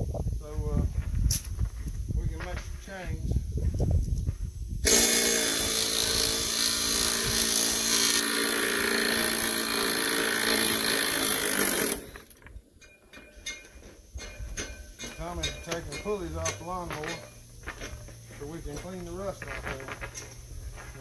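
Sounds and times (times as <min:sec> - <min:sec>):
power tool running with hiss: 0:04.8 - 0:12.3
saw chain clinking: 0:04.8 - 0:21.0.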